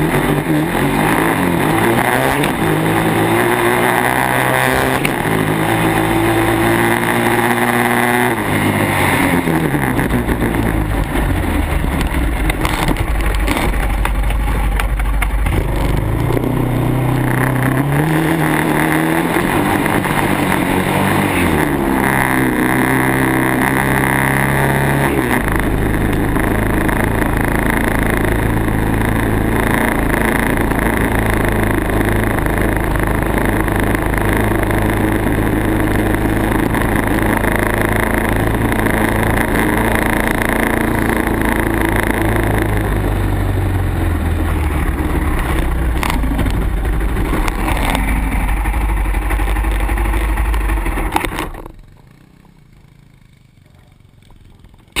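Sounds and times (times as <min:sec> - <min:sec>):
off-road vehicle engine running: 0:00.0 - 0:55.0
wind noise on camera: 0:02.0 - 0:21.3, 0:44.9 - 0:51.8.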